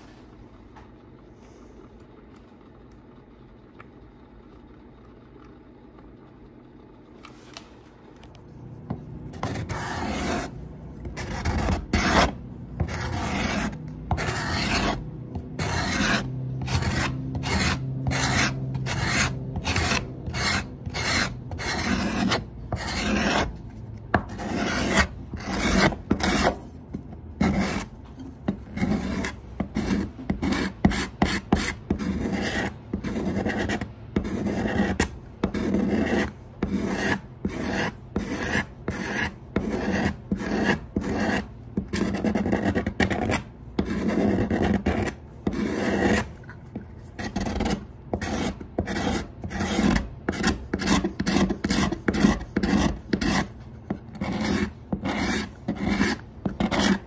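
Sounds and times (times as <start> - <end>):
card scraper shaving wood: 8.8 - 26.8, 47.2 - 57.0.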